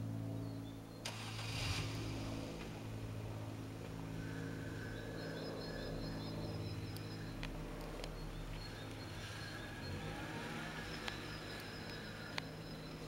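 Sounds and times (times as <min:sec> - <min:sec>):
propeller aircraft droning: 0:00.0 - 0:13.0
bird chirping: 0:04.3 - 0:13.0.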